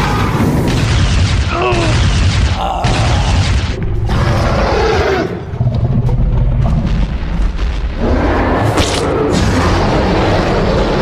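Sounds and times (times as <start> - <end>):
booming and roaring effects: 0.0 - 11.0
music: 2.6 - 9.8.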